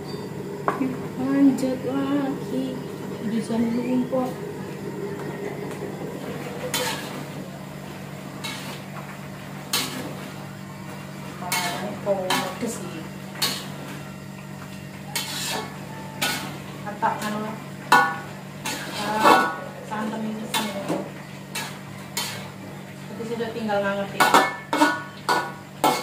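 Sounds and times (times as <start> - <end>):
spatula scraping a wok: 6.4 - 7.4, 8.3 - 9.0, 9.6 - 10.4, 11.4 - 13.9, 15.1 - 17.3, 17.9 - 20.9, 21.5 - 22.6, 24.2 - 26.0.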